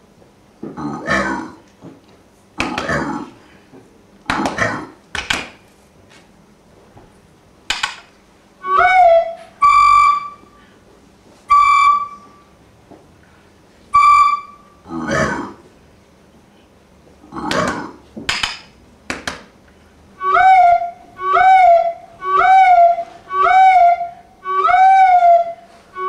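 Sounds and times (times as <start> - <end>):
recorder notes: 8.6 - 15.7, 20.1 - 26.0.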